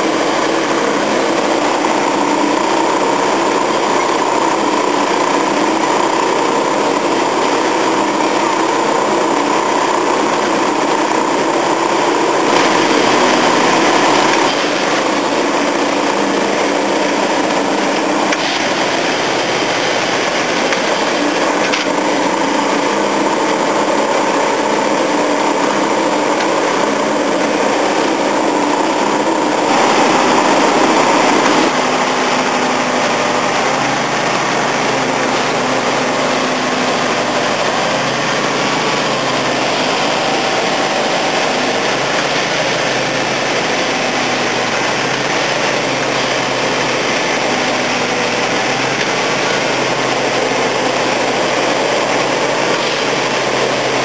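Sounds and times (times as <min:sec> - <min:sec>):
clatter of working gear: 0:00.0 - 0:30.3
track machinery running: 0:00.0 - 0:54.0.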